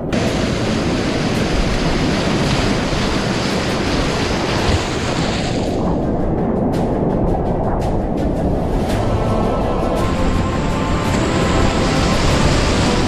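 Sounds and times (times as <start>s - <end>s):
whitewater rapids rushing: 0.1s - 5.8s, 8.9s - 13.0s.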